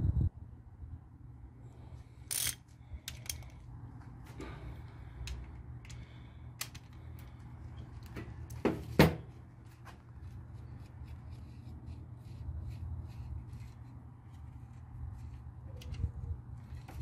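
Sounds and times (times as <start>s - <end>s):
low steady hum: 0.0s - 17.0s
ratchet clicking: 2.3s - 3.5s
metal tools clinking: 2.3s - 3.6s.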